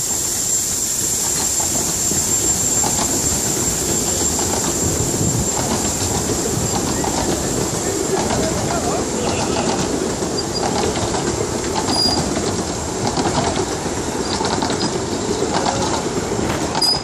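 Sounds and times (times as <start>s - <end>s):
train wheels rumbling: 0.0s - 17.0s
clicking over rail joints: 8.1s - 17.0s.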